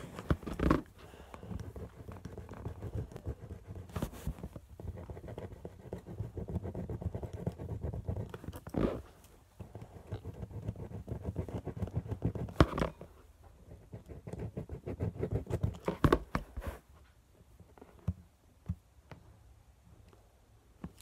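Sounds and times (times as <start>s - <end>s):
fingernail tapping and scratching: 0.0s - 13.1s.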